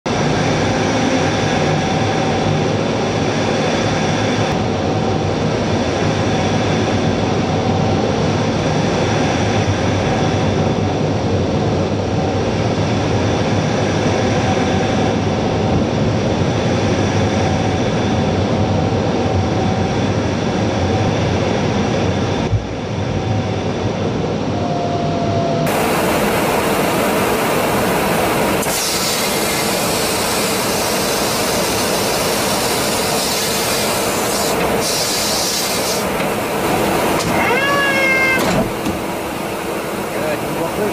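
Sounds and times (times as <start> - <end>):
jet engine drone and airflow: 0.0 - 40.9
whining tones: 29.5 - 40.1.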